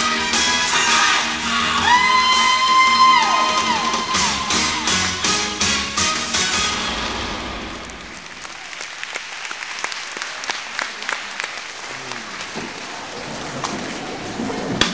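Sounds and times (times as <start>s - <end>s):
small audience applauding: 0.0s - 6.8s, 7.7s - 14.9s
music: 0.0s - 8.0s.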